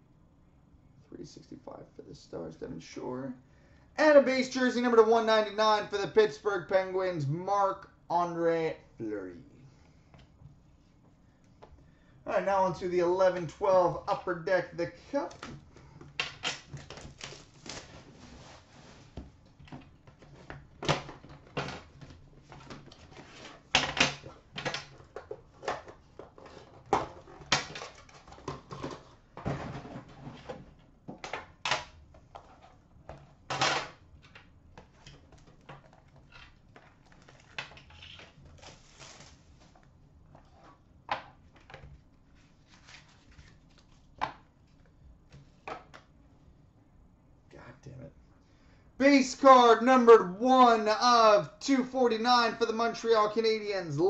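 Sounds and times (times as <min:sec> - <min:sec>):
packaging rustling: 0:16.4 - 0:19.0, 0:35.3 - 0:39.8.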